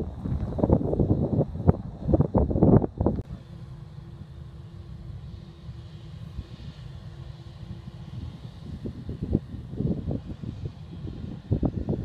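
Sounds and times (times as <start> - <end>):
distant jet airliner rumble: 0.0 - 12.0
wind buffeting microphone: 0.0 - 12.0.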